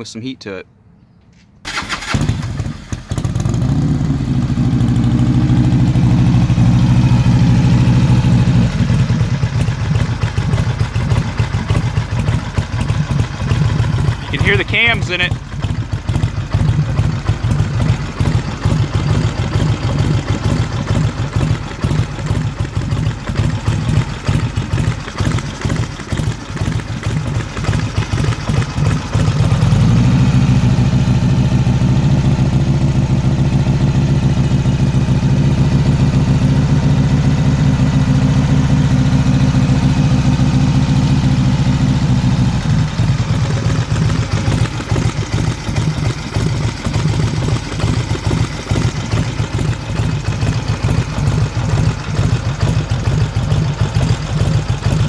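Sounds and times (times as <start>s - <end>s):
motorcycle engine idling: 1.7s - 55.0s
motorcycle engine revving: 1.7s - 55.0s
engine cams ticking: 9.4s - 29.9s, 42.6s - 55.0s.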